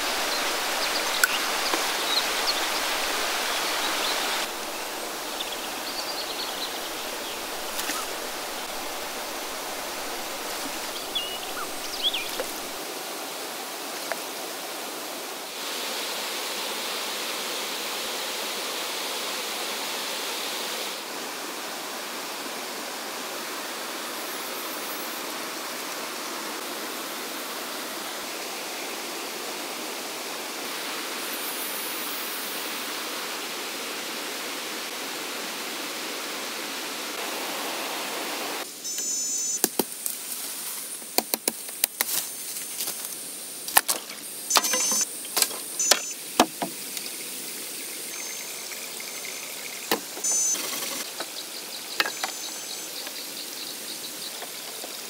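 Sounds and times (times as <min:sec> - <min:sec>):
flowing water: 0:00.0 - 0:39.6.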